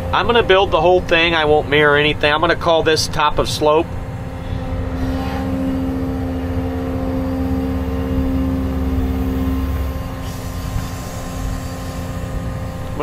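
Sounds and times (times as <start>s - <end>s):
excavator engine running: 0.0s - 13.0s.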